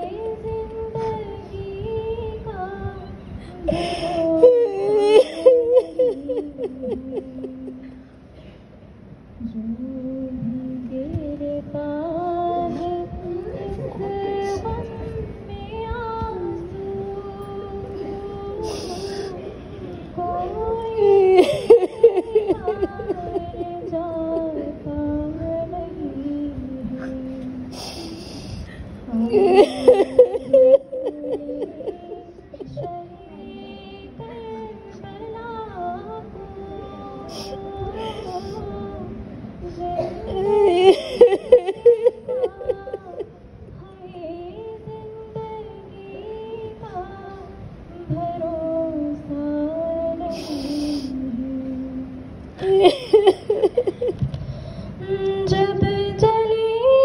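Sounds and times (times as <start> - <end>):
woman singing unaccompanied: 0.0 - 8.0, 9.4 - 54.2, 55.0 - 57.0
short hiss: 50.3 - 51.2.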